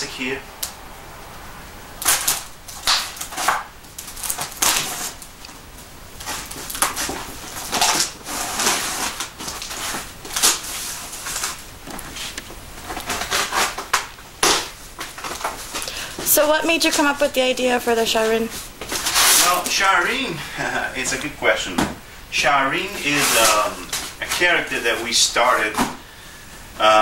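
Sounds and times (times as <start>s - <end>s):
packing tape pulled off cardboard: 2.0s - 5.6s, 6.2s - 16.0s, 18.5s - 19.9s, 23.0s - 26.0s.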